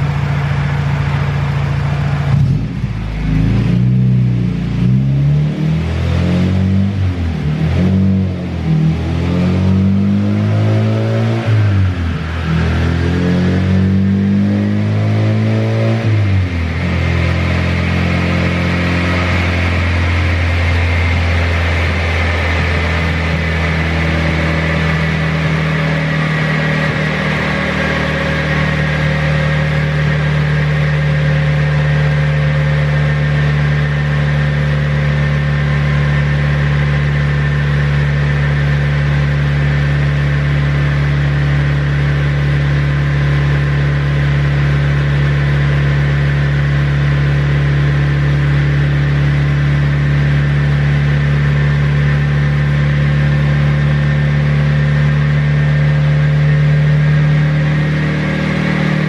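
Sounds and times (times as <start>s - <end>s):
car engine idling: 0.0s - 5.4s, 10.6s - 59.0s.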